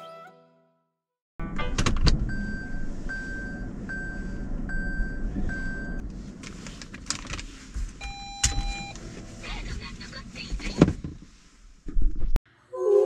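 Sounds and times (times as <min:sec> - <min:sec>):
low steady hum: 0:01.6 - 0:12.0
car warning chime beeping: 0:02.2 - 0:06.0, 0:08.0 - 0:09.4
lower beep: 0:02.3 - 0:06.0, 0:08.0 - 0:09.0.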